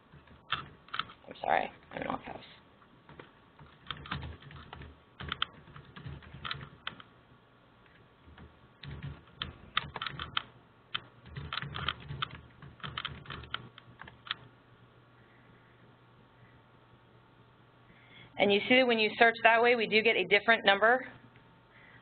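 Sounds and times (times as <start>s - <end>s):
typing on keyboard: 0.1s - 1.2s, 3.1s - 7.1s, 7.9s - 14.5s.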